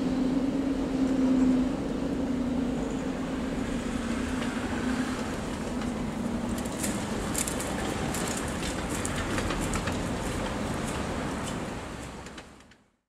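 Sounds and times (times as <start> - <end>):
electric train humming: 0.0 - 12.0.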